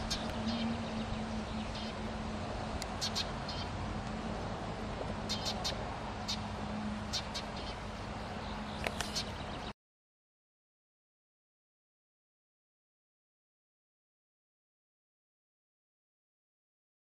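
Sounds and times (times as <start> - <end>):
songbirds chirping: 0.0 - 9.8.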